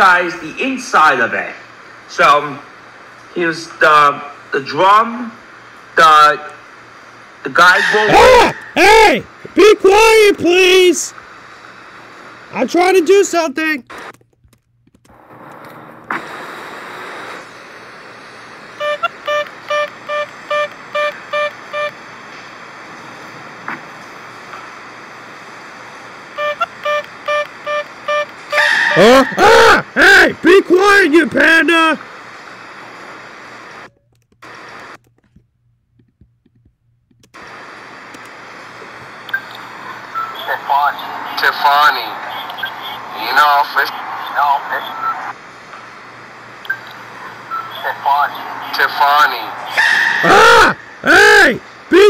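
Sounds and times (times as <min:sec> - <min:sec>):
steady background hiss: 0:00.0 - 0:14.2, 0:15.1 - 0:35.4, 0:37.2 - 0:52.0
outdoor background noise: 0:00.0 - 0:52.0
bicycle horn beeping: 0:26.4 - 0:29.1.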